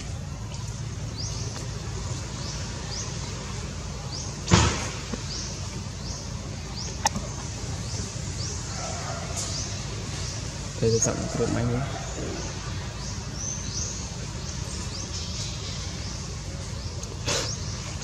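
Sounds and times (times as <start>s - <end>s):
loud thump: 4.4s - 5.1s.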